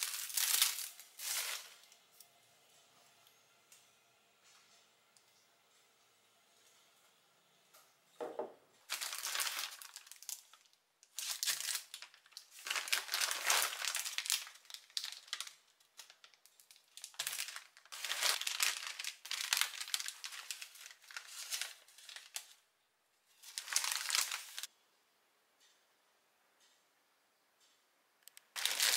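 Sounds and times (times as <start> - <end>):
plastic and paper bags crinkling: 0.0 - 2.0, 8.3 - 22.6, 23.4 - 24.7, 28.5 - 28.9.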